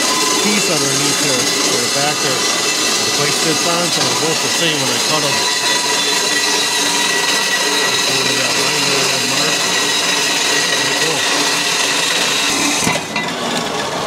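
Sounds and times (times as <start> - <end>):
power saw cutting metal: 0.0 - 14.0.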